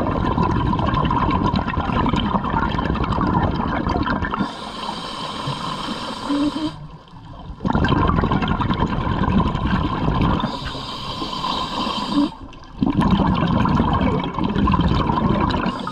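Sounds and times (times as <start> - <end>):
bubbles rushing and gurgling: 0.0 - 15.9
diver breathing through regulator: 4.4 - 6.9, 10.4 - 12.5, 15.6 - 15.9.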